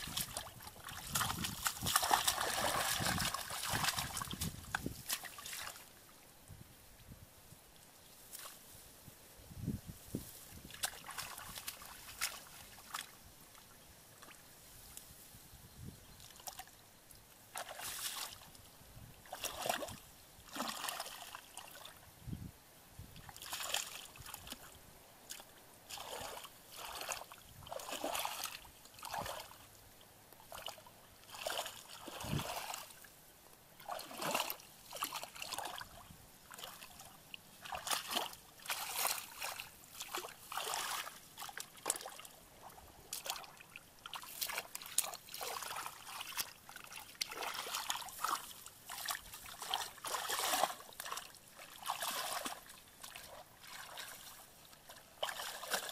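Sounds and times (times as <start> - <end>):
muddy water splashing: 0.0 - 6.0, 10.5 - 14.4, 16.3 - 16.8, 17.5 - 22.0, 23.2 - 33.1, 33.8 - 55.9.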